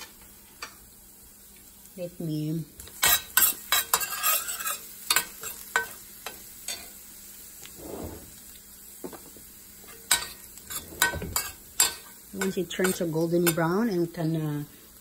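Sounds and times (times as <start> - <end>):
faint sizzle: 0.0 - 15.0
metal spoon scraping a pan: 2.8 - 7.0, 7.6 - 8.4, 9.8 - 14.0.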